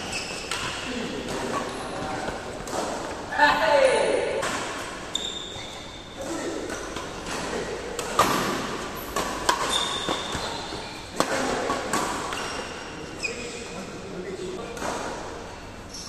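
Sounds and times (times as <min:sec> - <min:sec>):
shoes squeaking on floor: 0:00.0 - 0:02.4, 0:05.0 - 0:07.3, 0:08.9 - 0:11.2, 0:12.2 - 0:13.8
rackets hitting shuttlecock: 0:00.1 - 0:03.2, 0:06.3 - 0:12.9.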